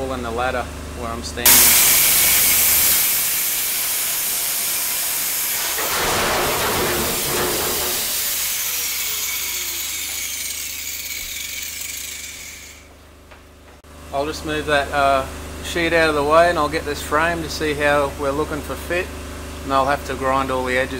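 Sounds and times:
angle grinder cutting sheet steel: 1.5 - 13.0.

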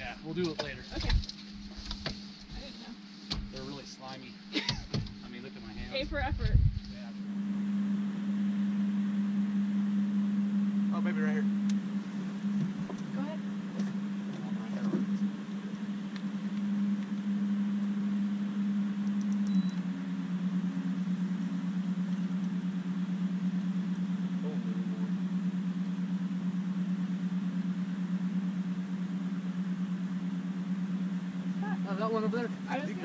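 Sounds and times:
boat motor droning: 7.0 - 33.0.

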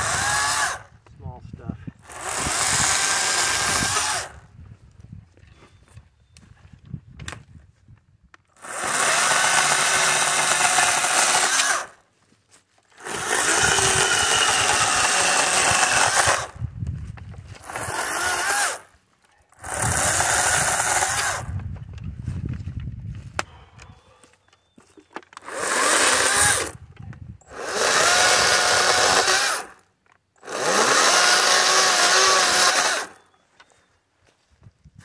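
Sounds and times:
electric chainsaw cutting branches: 0.0 - 0.9, 2.0 - 4.4, 8.5 - 12.0, 12.9 - 16.6, 17.5 - 18.9, 19.6 - 21.6, 25.4 - 26.8, 27.5 - 33.2.

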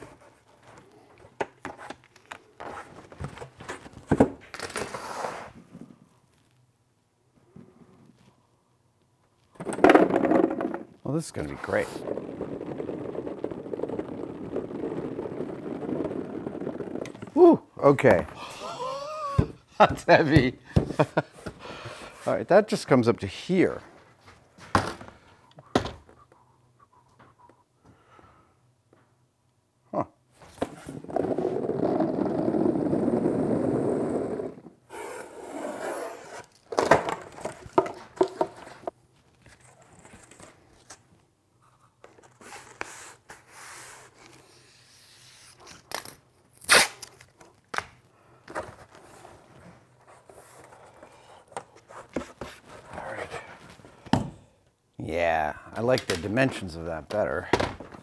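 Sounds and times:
tape tearing off roll: 1.6 - 5.6, 9.5 - 17.4, 42.1 - 48.0.

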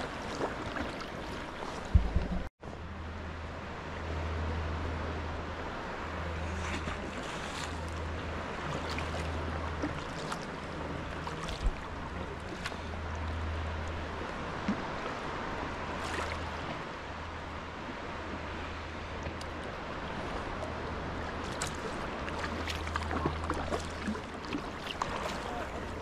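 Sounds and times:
water lapping around kayak: 0.0 - 26.0
small water drips: 20.5 - 25.9.

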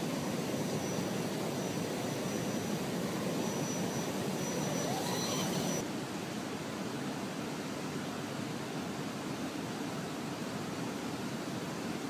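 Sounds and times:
faint high whine: 0.0 - 5.8
river water rushing: 0.0 - 12.0.

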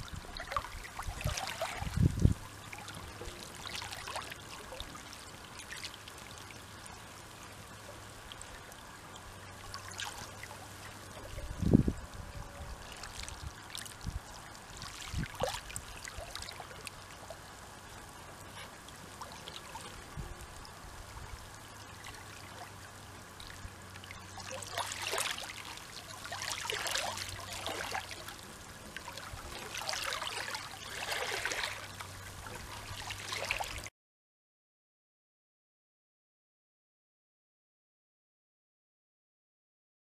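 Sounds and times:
waves lapping on rocks: 12.8 - 17.3, 23.4 - 33.9.

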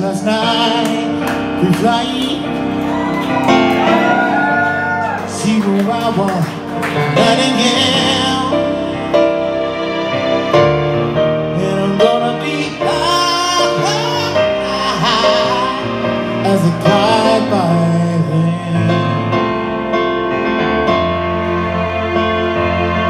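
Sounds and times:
man singing: 0.0 - 2.8, 5.2 - 9.4, 11.4 - 19.8
electric keyboard ballad: 0.0 - 23.0.

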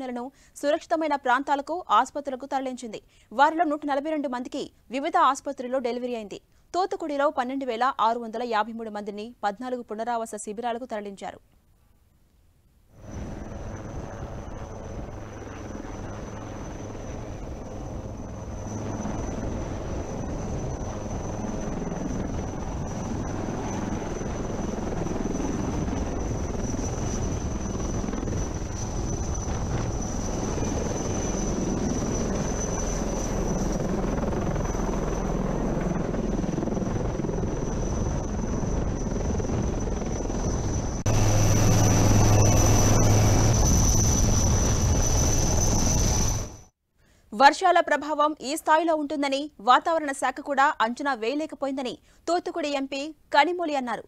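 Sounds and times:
helicopter turbine and rotor noise: 0.0 - 11.2, 13.0 - 46.7
strong low hum: 40.7 - 46.6.

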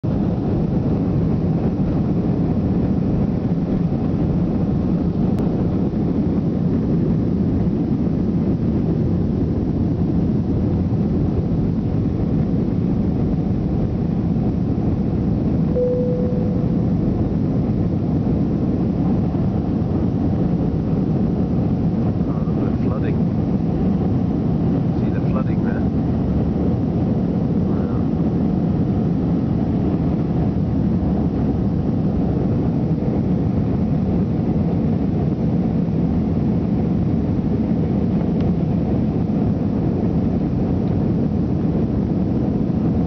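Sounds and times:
jet engine cabin noise: 0.0 - 43.0
short steady tone: 15.7 - 17.3.

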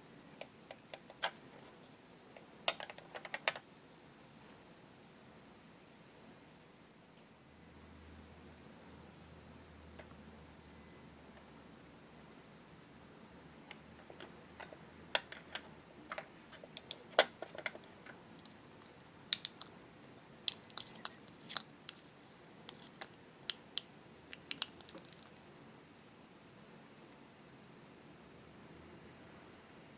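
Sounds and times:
plastic toy pieces clicking: 2.7 - 3.6, 14.1 - 19.8, 20.5 - 22.0.

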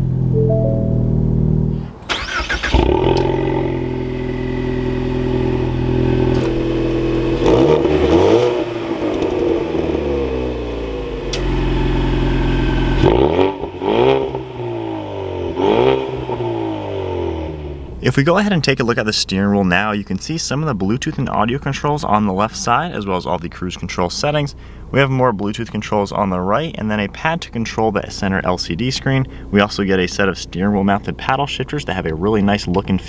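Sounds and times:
car engine idling and revving: 1.2 - 18.0.

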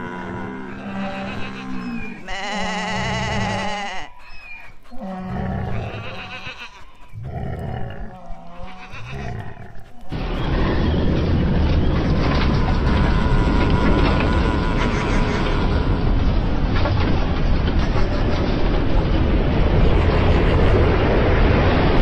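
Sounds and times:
animal calls: 0.0 - 16.2
steady rushing noise: 0.0 - 22.0.

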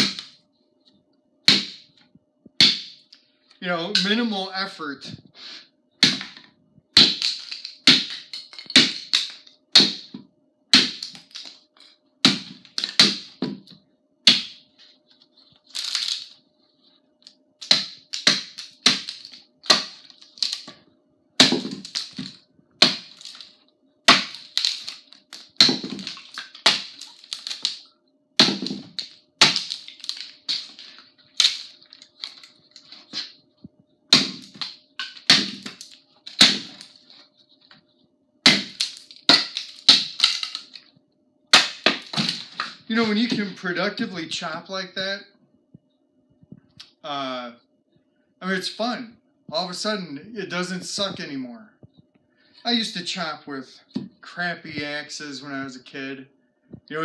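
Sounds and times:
tomahawk chopping wood: 0.0 - 0.3, 1.5 - 1.9, 2.6 - 3.0, 6.0 - 6.4, 7.0 - 10.2, 10.8 - 11.5, 12.2 - 13.7, 14.3 - 14.6, 17.6 - 20.7, 21.4 - 23.5, 24.1 - 27.8, 28.4 - 32.4, 34.1 - 37.0, 38.5 - 40.8, 41.5 - 43.5.

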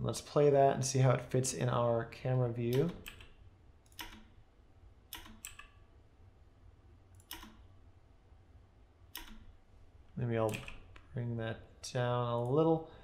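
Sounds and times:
faint steady hum: 0.0 - 13.0
computer keyboard clicks: 2.7 - 4.3, 5.1 - 5.8, 7.2 - 7.6, 9.2 - 9.5, 10.5 - 11.0.

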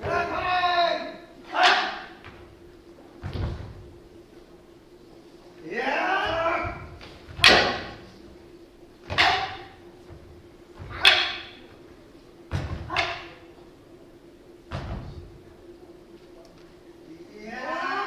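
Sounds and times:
wooden staffs clacking: 1.4 - 2.4, 6.3 - 8.1, 9.0 - 10.2, 10.8 - 11.8, 12.5 - 13.4.

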